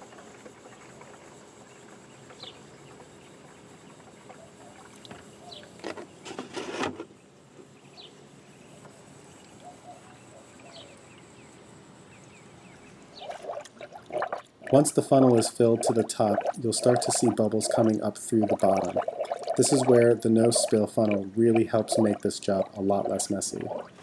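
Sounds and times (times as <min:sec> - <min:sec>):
liquid pouring into funnel: 0:13.2 - 0:24.0.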